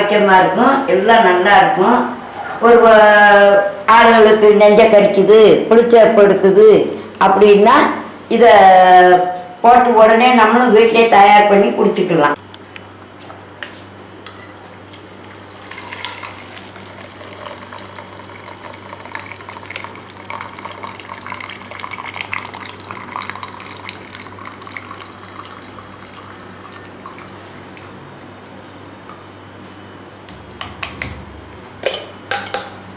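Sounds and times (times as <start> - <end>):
steady low hum: 0.0 - 32.9
liquid pouring and splashing: 14.8 - 27.9.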